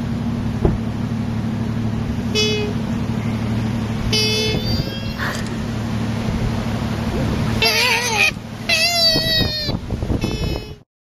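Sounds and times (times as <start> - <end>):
short high-pitched calls: 4.2 - 5.7, 7.6 - 10.8
koala bellowing growl: 7.5 - 9.4.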